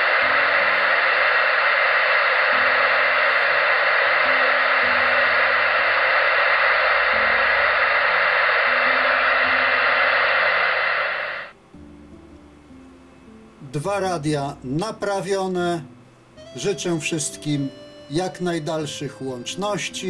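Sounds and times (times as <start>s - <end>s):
radio static hiss: 0.0s - 11.6s, 16.4s - 20.0s.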